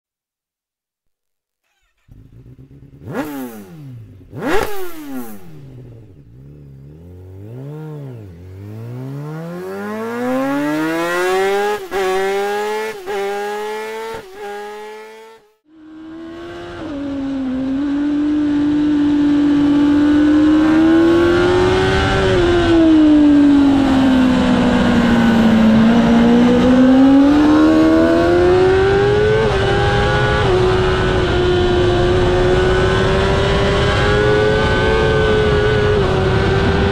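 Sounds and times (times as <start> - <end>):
motorbike engine revving: 1.6 - 36.9.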